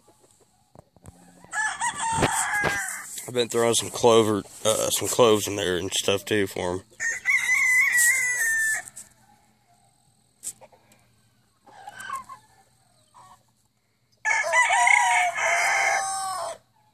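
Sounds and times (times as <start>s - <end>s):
soft rooster call: 1.0s - 3.2s, 7.0s - 10.0s, 10.6s - 13.4s, 14.2s - 16.9s
rooster crowing: 1.1s - 3.1s, 7.0s - 9.9s, 11.2s - 13.4s, 14.2s - 16.9s.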